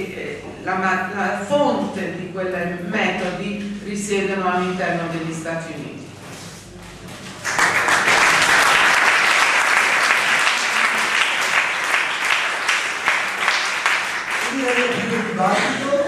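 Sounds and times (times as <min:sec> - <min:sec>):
audience applauding: 0:07.4 - 0:16.0.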